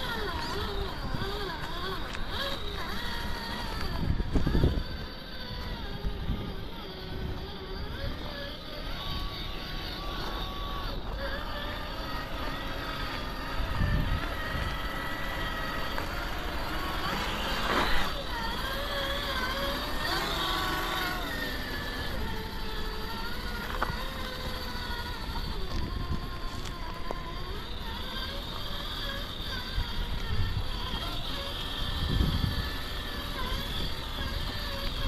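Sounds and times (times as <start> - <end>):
toy car electric motor whining: 0.0 - 35.0.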